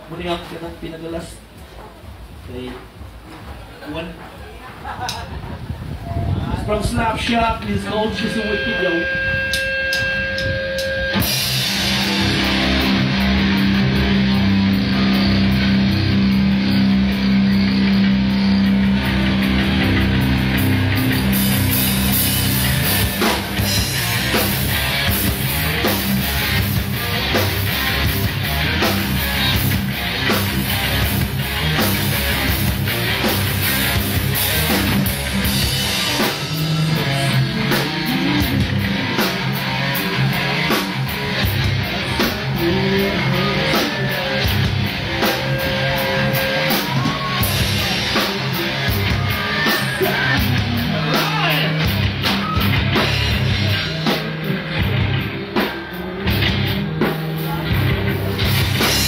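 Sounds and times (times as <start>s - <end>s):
drum kit beat: 0.0s - 59.0s
rock band playing: 0.0s - 59.0s
electric guitar: 4.2s - 59.0s.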